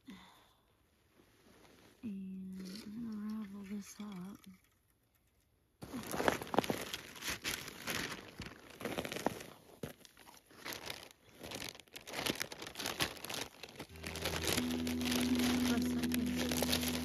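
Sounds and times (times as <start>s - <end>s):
plastic bag crinkling: 5.8s - 17.0s
snow crunching: 13.9s - 17.0s.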